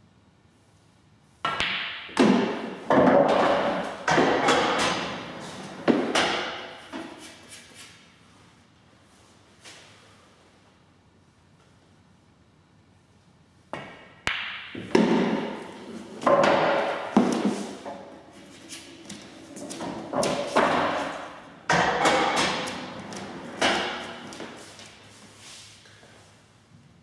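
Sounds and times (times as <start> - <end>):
knocks and thuds at pool table: 1.5 - 5.2, 5.8 - 7.1, 13.8 - 18.1, 19.1 - 24.6.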